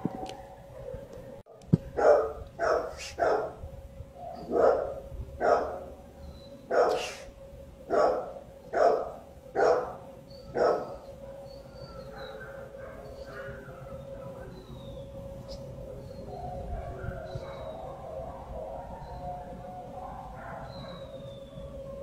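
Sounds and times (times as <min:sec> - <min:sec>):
faint steady hum: 0:00.0 - 0:22.0
dog barking: 0:00.8 - 0:03.6, 0:04.2 - 0:05.9, 0:06.7 - 0:07.2, 0:07.9 - 0:14.5, 0:16.4 - 0:21.1.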